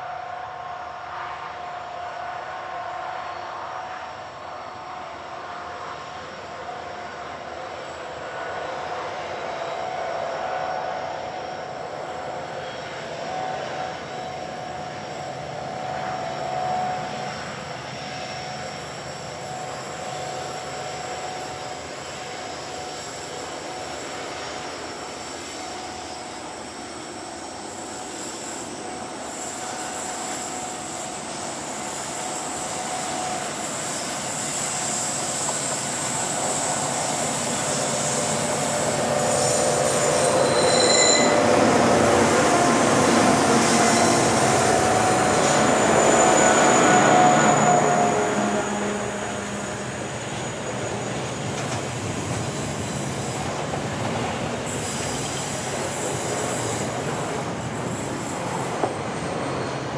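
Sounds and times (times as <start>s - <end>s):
diesel locomotive engines running: 0.0s - 59.9s
wheel flanges squealing on rail: 0.0s - 59.9s.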